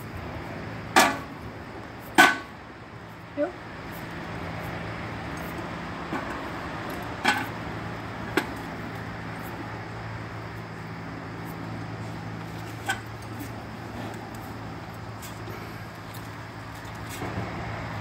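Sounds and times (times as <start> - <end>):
steady low hum: 0.0 - 18.0
clinks and knocks of tack and ladder: 1.0 - 1.3, 2.2 - 2.5, 6.1 - 7.6, 12.6 - 14.4.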